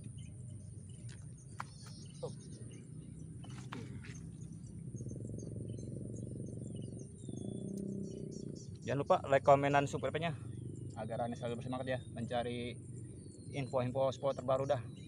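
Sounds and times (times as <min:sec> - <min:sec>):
faint bird chirps: 0:00.0 - 0:15.0
high-pitched insect drone: 0:03.5 - 0:15.0.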